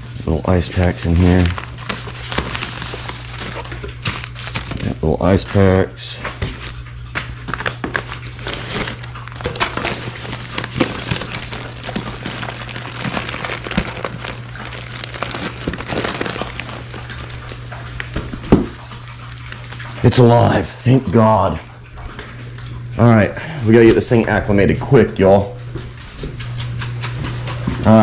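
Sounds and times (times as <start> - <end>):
plastic bag crinkling: 0.1 - 5.6, 7.4 - 20.3
newspaper rustling and crinkling: 0.5 - 5.8, 7.4 - 20.2.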